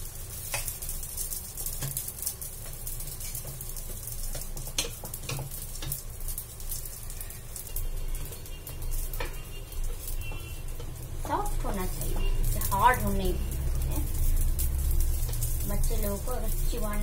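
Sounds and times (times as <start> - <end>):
pancakes sizzling in oil: 0.0 - 17.0
spatula clicking against pan: 0.4 - 0.9, 1.6 - 6.1.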